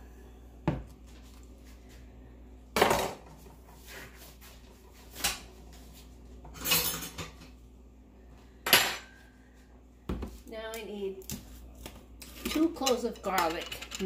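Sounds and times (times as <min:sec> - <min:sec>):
kitchen utensils and dishes clattering: 0:06.4 - 0:07.6, 0:08.6 - 0:09.2, 0:12.2 - 0:14.0.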